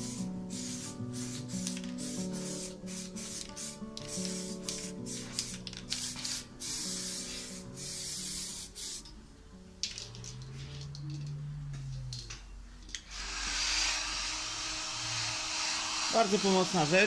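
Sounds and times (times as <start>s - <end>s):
blower hissing: 0.0s - 9.1s, 12.9s - 17.0s
paint spray gun hissing: 0.0s - 9.1s, 13.1s - 17.0s.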